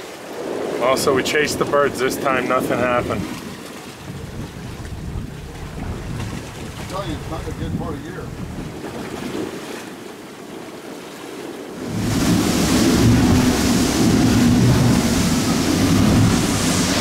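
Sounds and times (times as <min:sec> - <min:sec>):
quiet sea sounds: 0:00.0 - 0:17.0
water rushing past hull: 0:00.0 - 0:17.0
wind on microphone: 0:00.0 - 0:17.0
outboard engines running: 0:02.5 - 0:09.8, 0:11.8 - 0:17.0.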